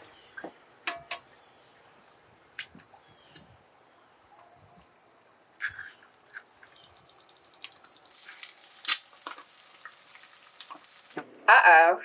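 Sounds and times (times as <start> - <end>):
eggs sizzling in a pan: 0.0 - 12.0
eggs cracked on a skillet: 4.4 - 11.2.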